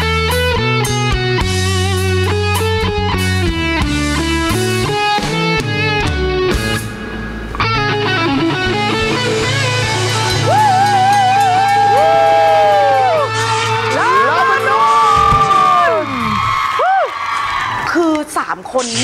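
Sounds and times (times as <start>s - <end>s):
rhythmic guitar riff: 0.0s - 16.1s
rock band playing: 0.0s - 16.7s
wavering high guitar notes: 0.5s - 16.4s
held guitar chord: 4.2s - 11.7s.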